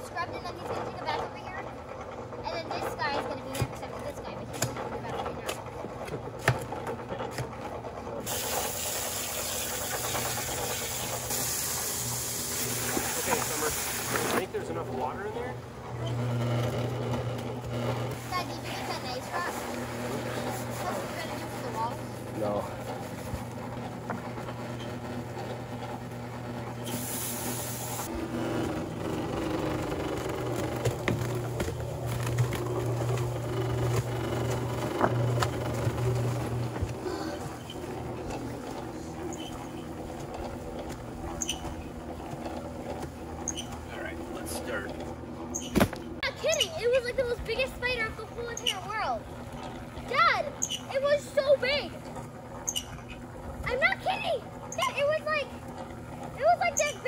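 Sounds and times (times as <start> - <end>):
cement mixer running: 0.0 - 57.0
hose nozzle spraying water: 8.2 - 14.4, 26.8 - 28.1.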